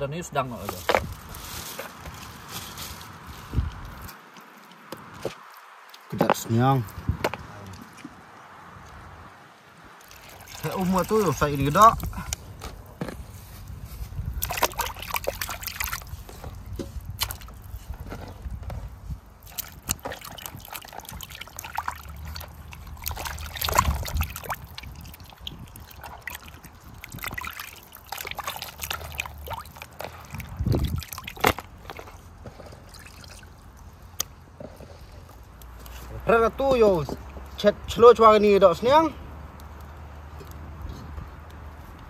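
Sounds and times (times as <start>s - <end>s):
water sloshing and trickling: 0.6s - 6.8s, 9.9s - 40.6s
sharp splashes and knocks: 10.0s - 13.2s, 14.2s - 34.8s.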